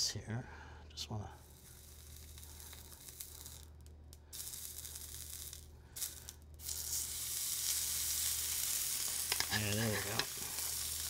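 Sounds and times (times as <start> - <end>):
meat sizzling in a hot pan: 4.4 - 11.0.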